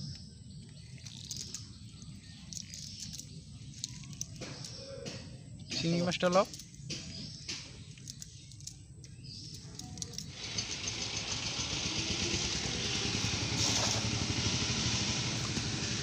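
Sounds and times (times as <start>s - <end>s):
net splashing on water: 13.6s - 14.2s.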